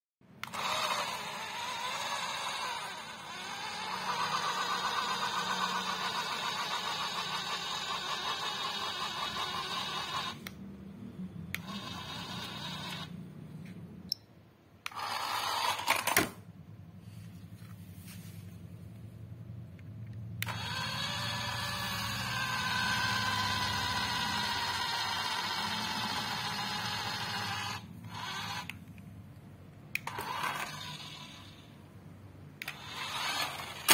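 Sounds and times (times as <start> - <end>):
toy car motors whirring: 0.4 - 10.6, 11.5 - 13.2, 14.8 - 16.4, 20.4 - 29.0, 29.9 - 31.8, 32.6 - 33.9
clicks: 11.5 - 11.9.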